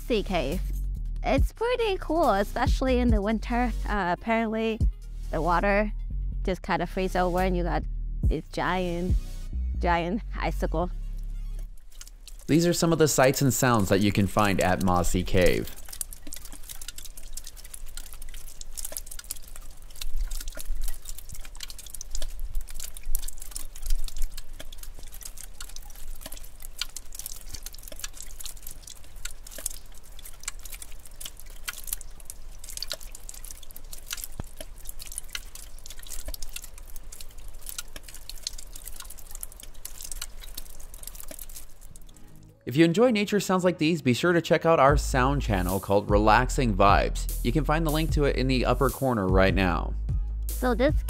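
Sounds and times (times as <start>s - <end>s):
water dripping: 10.8s - 42.6s.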